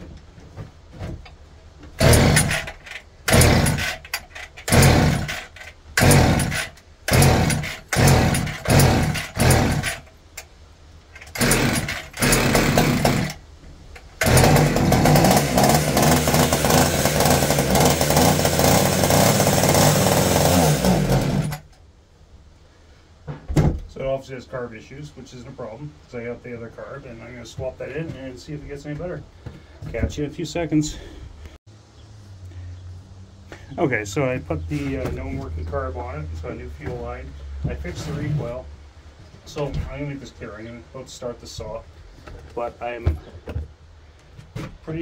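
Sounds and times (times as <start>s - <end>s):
chainsaw running steadily: 2.0s - 10.1s, 11.2s - 13.4s, 14.2s - 21.7s
chainsaw sputtering: 2.0s - 10.1s, 11.2s - 13.4s, 14.2s - 21.7s.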